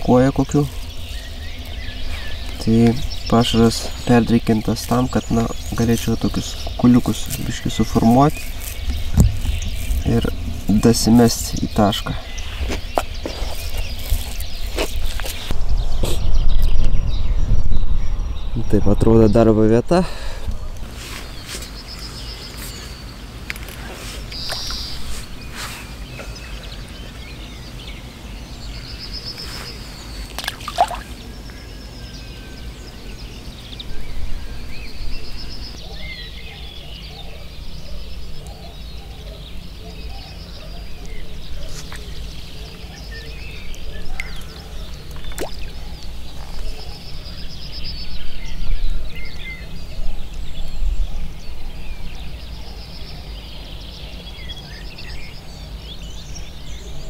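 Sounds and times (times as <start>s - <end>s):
songbird trilling: 0.0s - 17.4s, 21.2s - 57.0s
steady low rumble: 0.6s - 22.5s
water sloshing: 30.2s - 31.3s.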